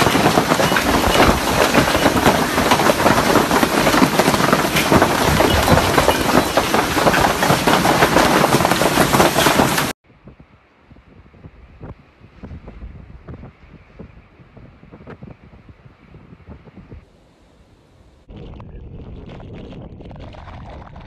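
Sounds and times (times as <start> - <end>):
hail and rain pelting down: 0.0 - 10.0.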